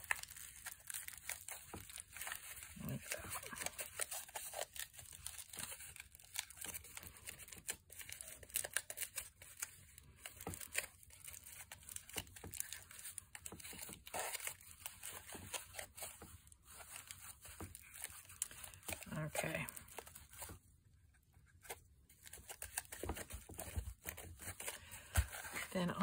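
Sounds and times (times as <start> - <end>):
aluminium foil crinkling: 0.0 - 20.6, 21.5 - 26.0.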